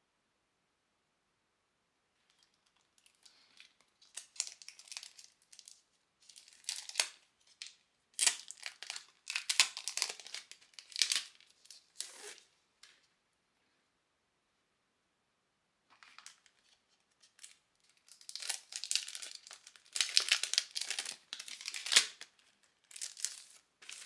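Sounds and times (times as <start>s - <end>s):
plastic sleeves crinkling: 2.2s - 13.1s, 15.9s - 24.0s.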